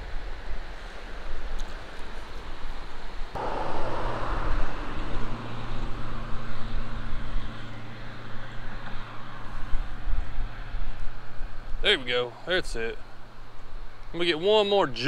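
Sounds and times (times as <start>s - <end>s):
wind on microphone: 0.0s - 11.8s
rushing noise: 3.4s - 12.0s
low engine hum: 3.4s - 14.1s.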